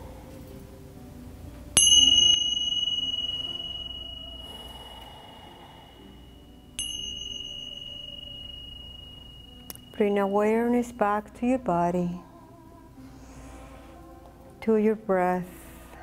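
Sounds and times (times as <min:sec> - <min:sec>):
faint background music: 0:00.0 - 0:16.0
high-pitched bell ringing: 0:01.8 - 0:11.0.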